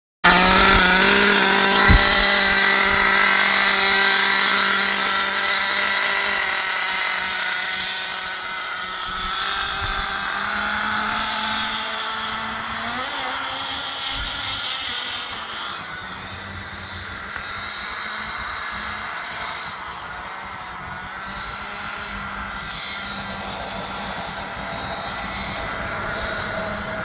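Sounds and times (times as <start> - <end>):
toy car motor buzzing: 0.2 - 20.9
short thump: 1.7 - 3.1.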